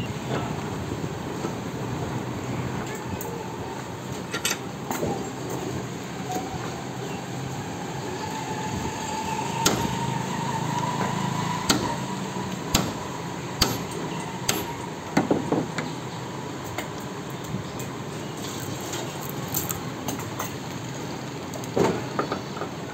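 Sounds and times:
steady background hum: 0.0s - 22.9s
hammer blows: 9.6s - 10.2s, 11.0s - 12.1s, 12.7s - 15.3s.

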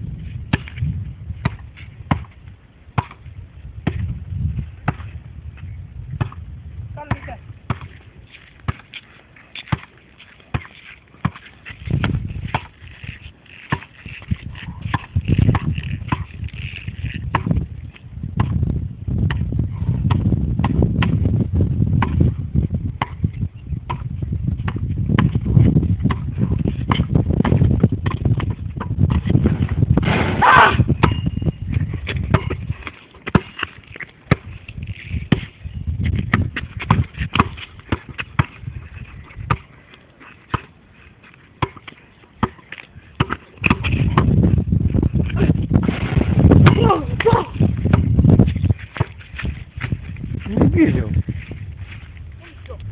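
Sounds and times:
basketball bouncing: 1.4s - 3.2s, 3.8s - 4.1s, 4.8s - 5.2s, 6.2s - 6.4s, 7.0s - 9.0s, 9.6s - 12.8s, 13.6s - 16.4s, 17.0s - 17.7s, 18.3s - 18.6s, 19.2s - 21.3s, 21.9s - 39.8s, 40.5s - 40.8s, 41.6s - 50.0s.

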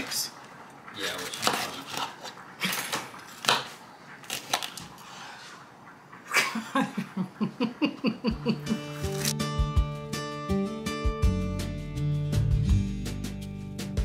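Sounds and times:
music: 8.6s - 14.0s.

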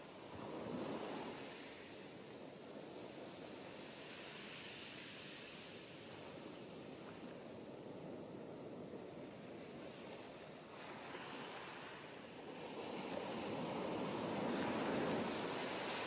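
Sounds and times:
wind: 0.0s - 16.0s
sea surf washing against cliffs: 10.0s - 16.0s.

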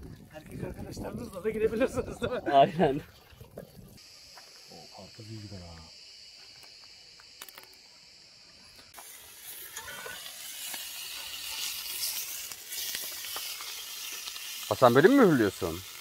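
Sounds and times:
meat sizzling in a pan: 8.9s - 16.0s.

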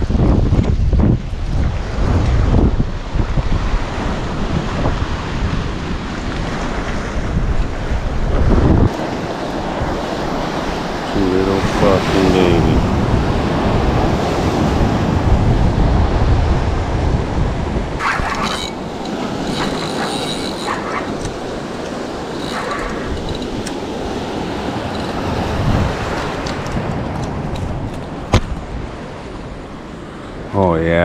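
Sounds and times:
wind rumbling on microphone: 0.0s - 30.6s
ocean surf rushing: 1.4s - 31.0s
handling rustles and clicks: 18.0s - 23.8s.

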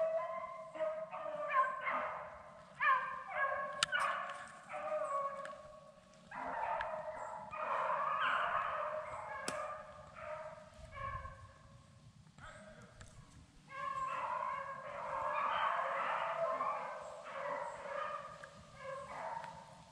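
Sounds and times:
dogs baying: 0.0s - 5.8s, 6.4s - 11.6s, 13.7s - 19.7s.

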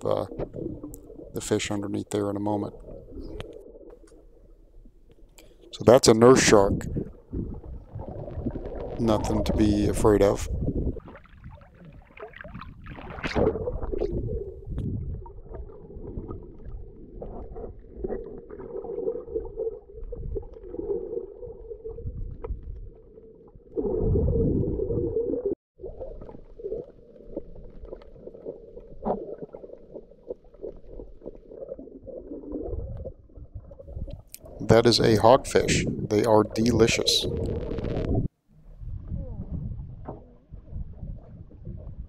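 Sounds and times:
faint underwater clicks: 0.0s - 5.8s, 7.5s - 10.3s, 32.9s - 34.6s, 36.2s - 38.2s
underwater rumble and sloshing: 0.0s - 42.0s.

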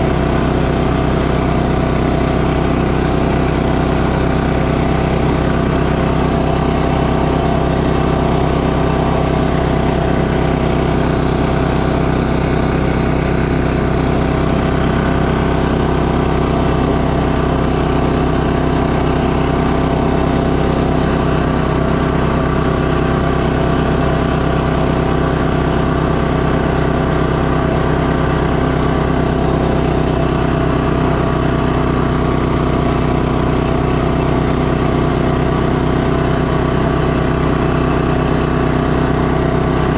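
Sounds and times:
snowblower engine running: 0.0s - 39.9s.

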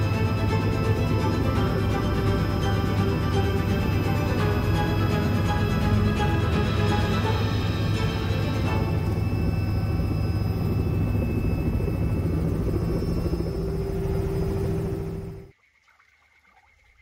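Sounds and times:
music: 0.0s - 13.3s
helicopter turbine and rotor: 0.0s - 15.5s
steady mid-pitched tone: 0.0s - 15.5s.

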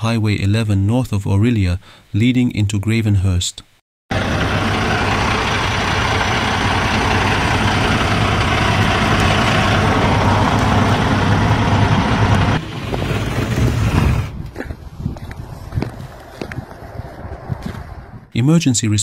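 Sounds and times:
vehicle engine idling: 4.1s - 13.6s
loud rushing noise: 4.1s - 14.4s.

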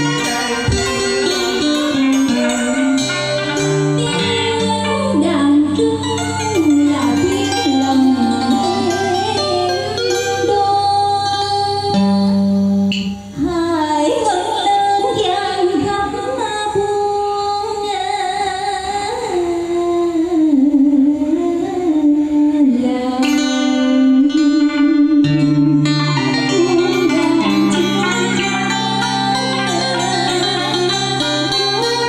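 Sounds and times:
electric guitar and keyboard: 0.0s - 13.4s, 25.1s - 32.0s
woman singing: 0.0s - 32.0s.

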